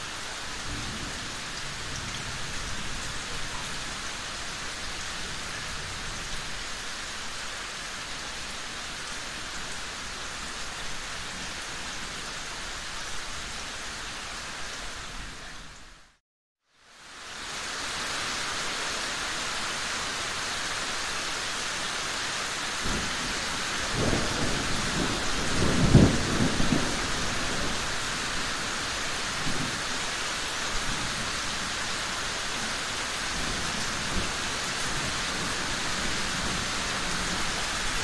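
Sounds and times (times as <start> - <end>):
steady rain falling: 0.0 - 38.0
rolling thunder: 23.9 - 27.9.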